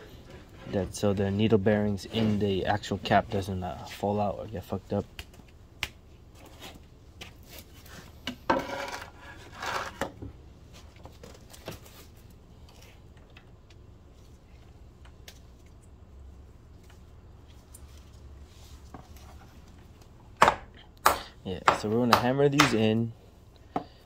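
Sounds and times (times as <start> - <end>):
board scraping across concrete: 8.5 - 10.0.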